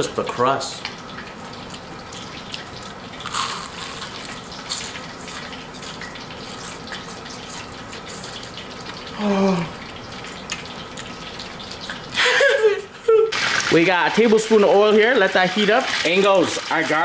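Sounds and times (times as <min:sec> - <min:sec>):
crispy chicken being chewed: 0:01.2 - 0:12.2.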